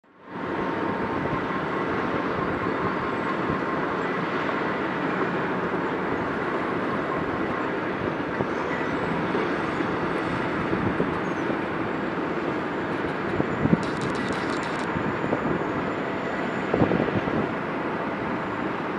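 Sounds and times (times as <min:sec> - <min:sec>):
faint even whine: 0:00.3 - 0:18.9
excavator mechanical rumble: 0:05.4 - 0:15.7.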